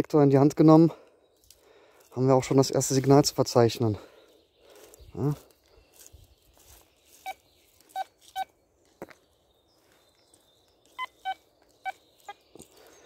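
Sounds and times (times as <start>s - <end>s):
metal detector short beeps: 7.2s - 8.5s, 11.0s - 12.0s.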